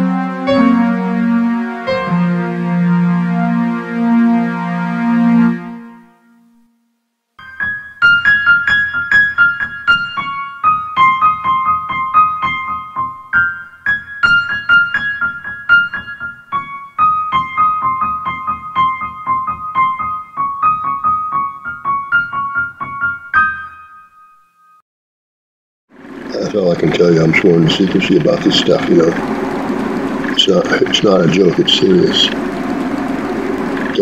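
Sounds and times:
electric piano melody: 0.0 - 6.6, 7.4 - 24.6, 27.6 - 34.0.

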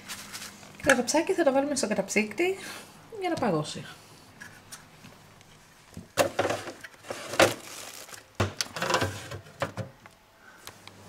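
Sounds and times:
freezer drawer and tray clattering: 6.2 - 10.0.

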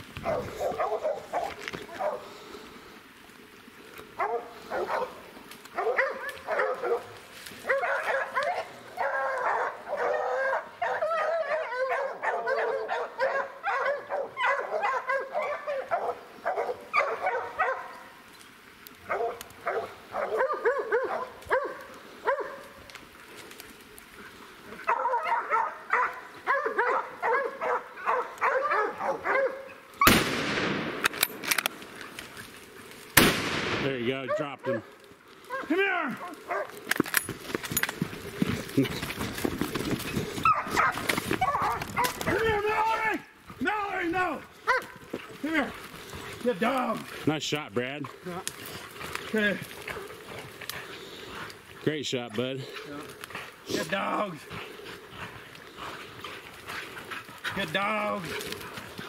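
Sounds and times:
hounds baying and barking: 0.1 - 2.4, 4.0 - 18.3, 19.0 - 30.1, 34.0 - 59.0
loud gunshot: 30.0 - 31.2, 33.2 - 34.0.

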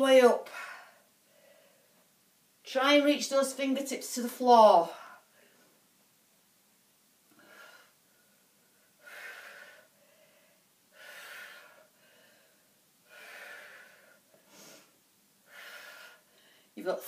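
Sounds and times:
woman breathing hard: 0.5 - 2.0, 7.3 - 16.8.

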